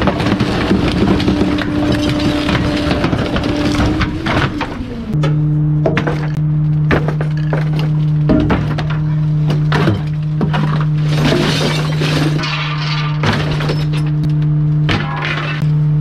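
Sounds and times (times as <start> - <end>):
engine and hydraulic drone: 0.2 - 7.0.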